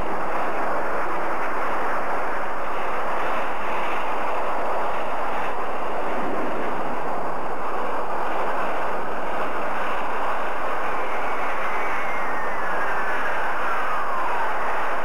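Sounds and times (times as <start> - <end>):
loud steady rushing noise: 0.0 - 15.0.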